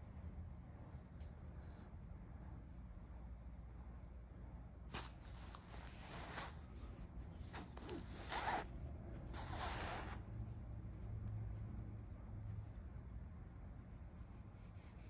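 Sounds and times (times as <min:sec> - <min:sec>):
hand rubbing cat fur: 0:04.9 - 0:15.0.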